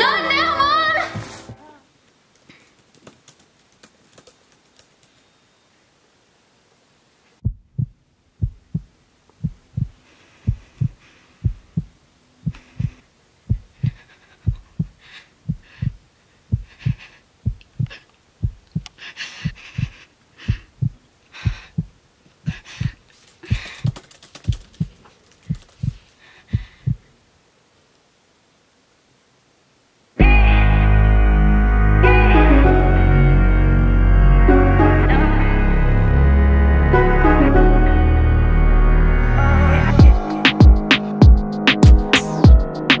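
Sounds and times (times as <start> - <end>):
heartbeat double thump: 7.4 - 23.0, 40.0 - 42.7.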